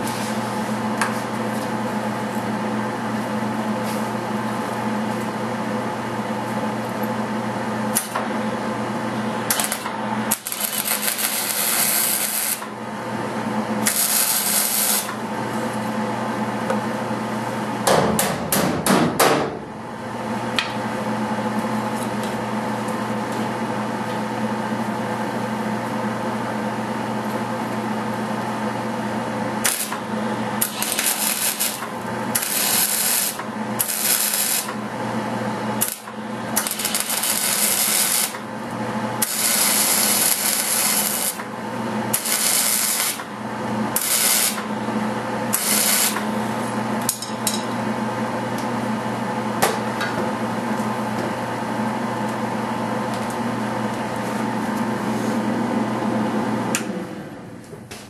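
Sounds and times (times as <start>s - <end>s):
steady hum: 0.0s - 58.0s
welding arc crackling: 7.9s - 8.2s, 9.4s - 12.8s, 13.8s - 15.3s, 29.4s - 44.8s, 45.4s - 46.4s.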